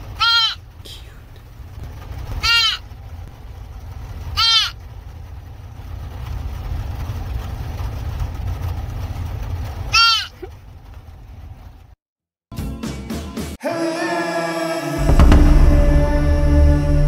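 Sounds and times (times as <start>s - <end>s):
car low rumble: 0.0s - 12.0s, 14.8s - 17.0s
deer fawn bleating: 0.1s - 0.6s, 2.4s - 2.8s, 4.4s - 4.8s, 9.9s - 10.4s.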